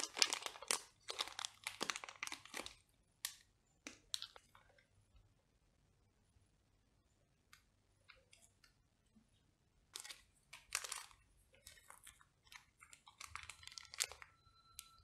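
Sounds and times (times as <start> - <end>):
plastic packaging crinkling: 0.0 - 4.8, 9.9 - 15.0.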